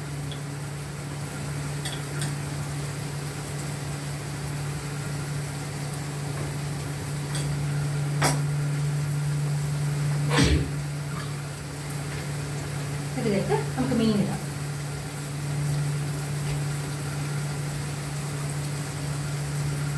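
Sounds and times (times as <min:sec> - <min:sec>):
low hum: 0:07.3 - 0:11.6.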